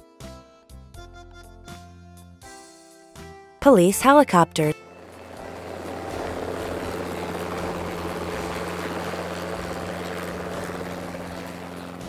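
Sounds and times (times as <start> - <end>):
helicopter rotor and engine: 3.8 - 12.0.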